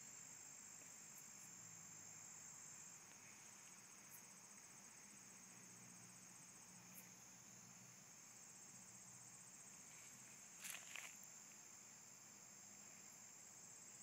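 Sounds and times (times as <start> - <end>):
crickets trilling: 0.0 - 14.0
soft rustles: 9.8 - 11.2.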